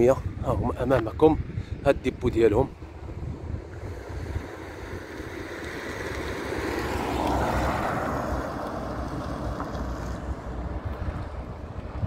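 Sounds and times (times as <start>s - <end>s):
wind rumble on microphone: 0.0s - 12.0s
road vehicle passing by: 2.7s - 12.0s.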